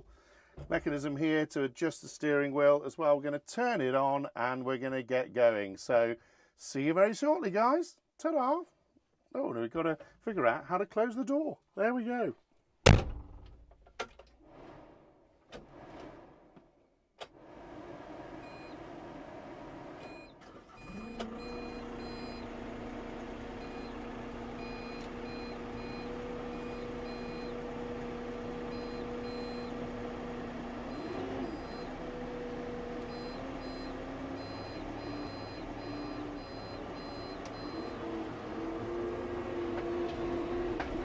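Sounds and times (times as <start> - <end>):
diesel engine starting and idling: 17.4 - 41.0
short electronic beeps: 20.1 - 22.4, 30.9 - 31.9, 33.1 - 38.0.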